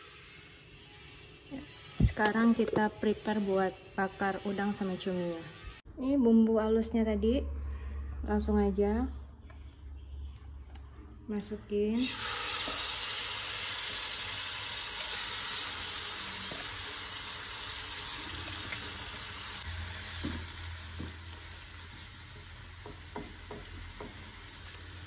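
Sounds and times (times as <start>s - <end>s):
paste sizzling in hot oil: 12.0s - 25.0s
spatula knocking and scraping pan: 22.3s - 24.4s.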